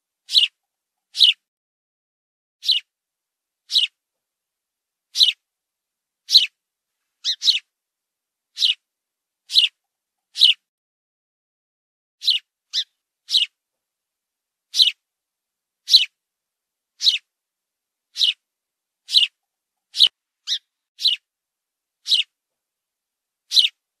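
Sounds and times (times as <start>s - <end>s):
sparrow chirping: 0.2s - 1.4s, 2.6s - 2.9s, 3.6s - 4.0s, 5.1s - 5.4s, 6.2s - 6.6s, 7.2s - 7.7s, 8.5s - 8.9s, 9.5s - 10.6s, 12.2s - 13.6s, 14.7s - 15.0s, 15.8s - 16.2s, 17.0s - 17.3s, 18.1s - 21.3s, 22.0s - 22.4s, 23.4s - 23.8s.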